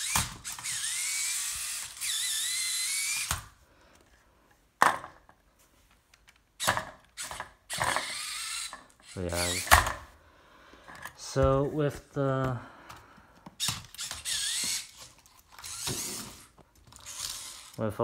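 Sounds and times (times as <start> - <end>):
robot motors whining: 0.0 - 3.4, 7.2 - 9.7, 13.6 - 17.8.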